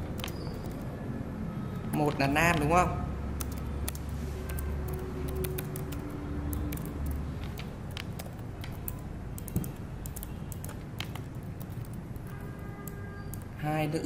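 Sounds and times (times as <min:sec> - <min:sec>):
keyboard key clicks: 0:03.4 - 0:13.5.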